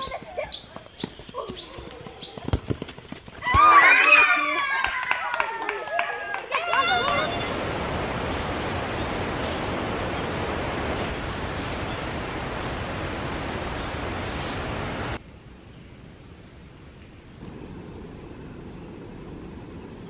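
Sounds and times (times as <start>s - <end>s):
faint hiss: 7.0s - 20.0s
steady rushing noise: 7.1s - 15.2s.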